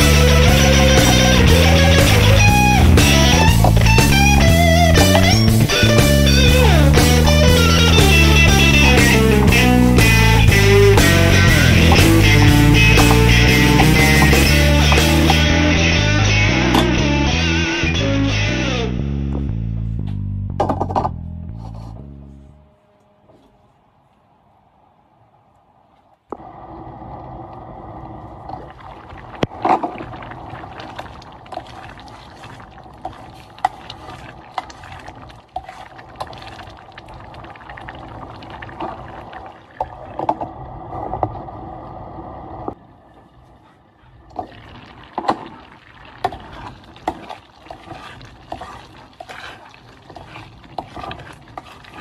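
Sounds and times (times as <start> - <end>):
porridge bubbling in a pot: 26.4 - 41.6, 43.8 - 52.0
spoon stirring thick rice: 46.2 - 52.0.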